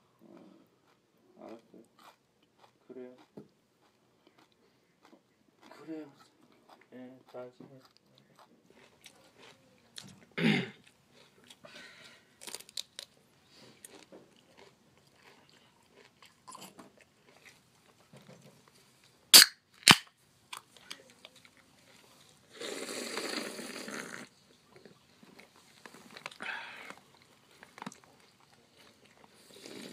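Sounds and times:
crunching and chewing snack: 0.1 - 18.4, 19.0 - 29.9.

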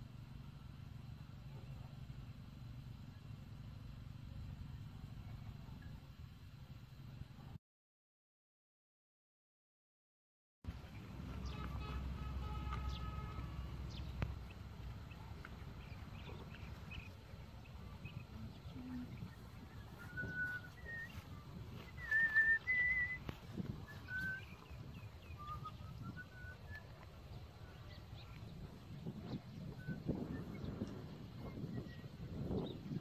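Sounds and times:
low background rumble: 0.0 - 7.6, 10.7 - 33.0
birds whistling: 15.1 - 28.5, 29.2 - 33.0.

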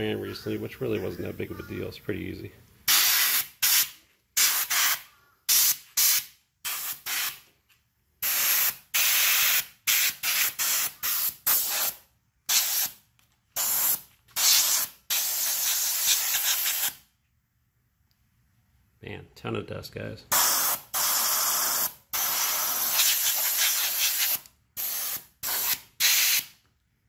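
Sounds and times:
air blow gun hissing: 13.6 - 17.0, 20.3 - 26.5.

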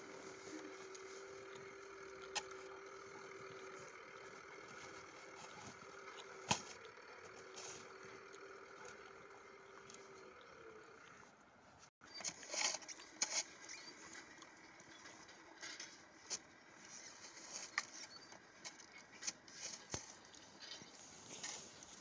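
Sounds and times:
toy bucket scraping snow: 12.1 - 13.9.

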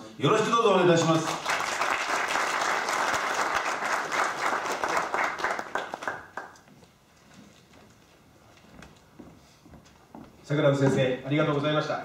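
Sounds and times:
audience applauding: 1.0 - 6.7.

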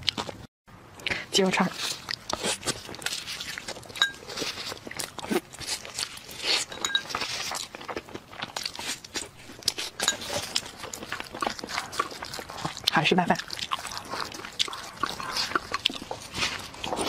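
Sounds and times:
chewing meat: 0.0 - 0.5, 1.6 - 17.0
spoon scraping a bowl: 2.4 - 4.7, 6.4 - 7.5.

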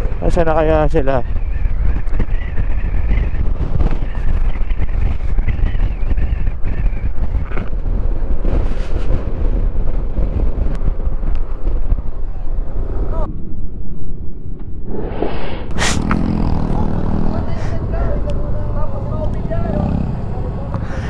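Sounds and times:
road noise: 0.0 - 6.4, 14.9 - 21.0
wind buffeting microphone: 0.0 - 21.0.

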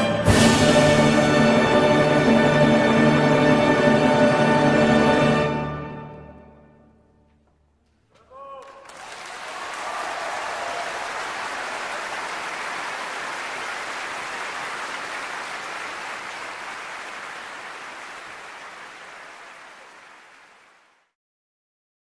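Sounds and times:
live music: 0.0 - 6.5
audience applause: 8.2 - 21.1.

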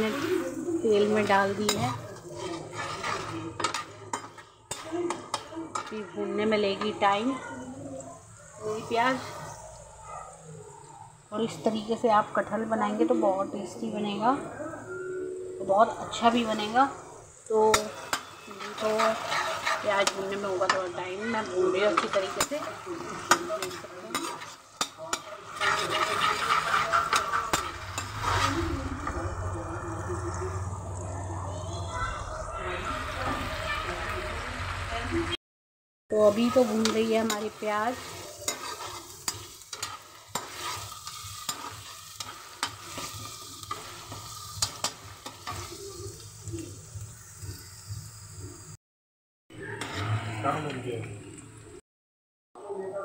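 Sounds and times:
onions sizzling in oil: 0.0 - 14.5, 15.6 - 35.4, 36.1 - 48.8
ladle clicking and scraping pan: 17.8 - 20.8, 22.0 - 28.5, 36.5 - 45.7.

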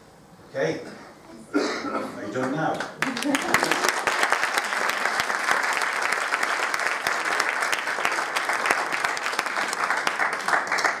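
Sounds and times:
audience applauding: 2.4 - 11.0.

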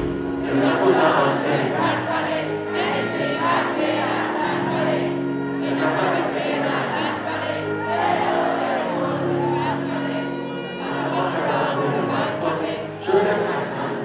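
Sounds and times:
live band playing: 0.0 - 0.7.

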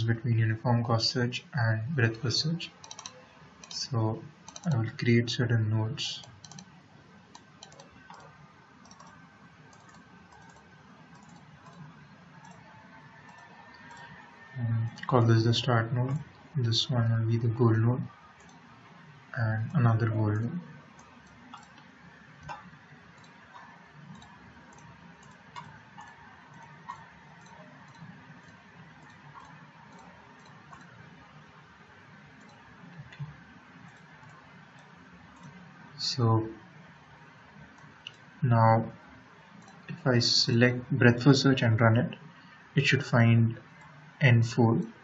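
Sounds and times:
steady background hiss: 0.0 - 45.0
computer mouse clicks: 2.8 - 3.8, 4.4 - 4.8, 6.2 - 6.7, 7.3 - 15.2, 18.4 - 18.7, 20.4 - 31.1, 32.4 - 35.6, 37.7 - 38.3, 39.6 - 40.0.

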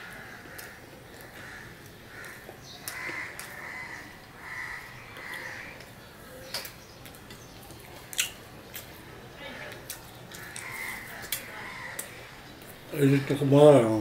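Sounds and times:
bird calling: 0.0 - 7.1.

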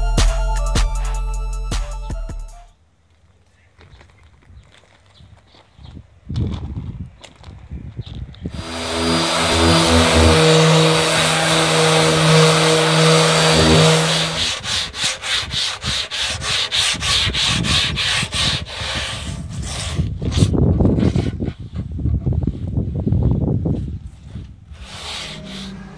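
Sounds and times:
orbital sander running: 8.6 - 16.2
hand sanding strokes: 8.6 - 21.4, 24.7 - 25.9.

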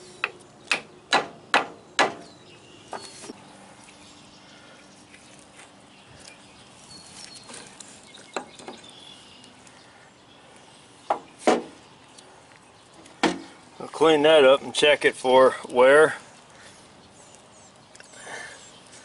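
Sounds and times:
faint bird chirps: 2.2 - 13.1.

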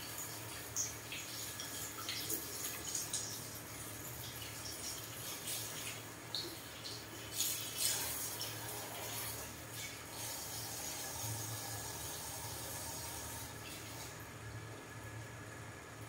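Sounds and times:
shower sprayer water running: 0.0 - 16.0.

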